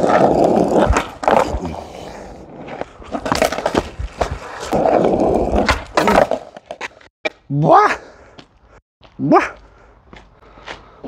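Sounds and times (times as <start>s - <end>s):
skateboard wheels rolling on asphalt: 0.0s - 7.1s.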